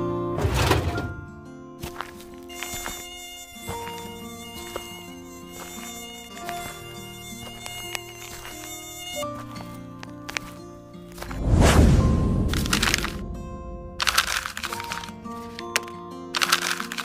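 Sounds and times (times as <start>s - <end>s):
mosquitoes whining: 2.0s - 11.4s.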